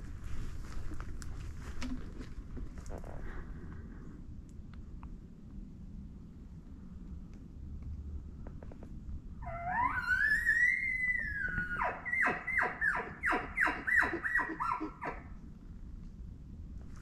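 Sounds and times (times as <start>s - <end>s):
elk bugling whistle: 9.4s - 15.2s.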